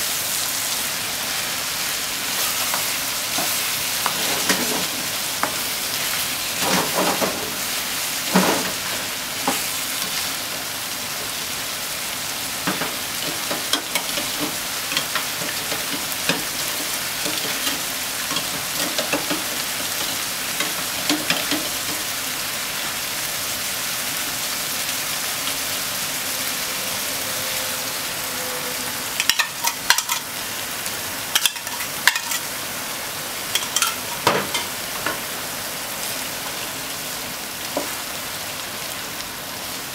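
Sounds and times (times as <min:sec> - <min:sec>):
food sizzling in a frying pan: 0:00.0 - 0:39.9
spatula scraping and knocking pan: 0:12.7 - 0:22.1.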